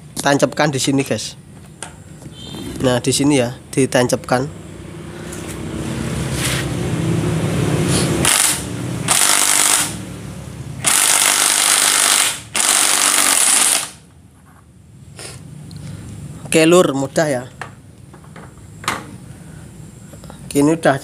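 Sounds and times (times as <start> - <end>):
impact wrench hammering: 8.2 - 10.0, 10.8 - 14.1
impact wrench motor running: 8.2 - 10.0, 10.8 - 14.0.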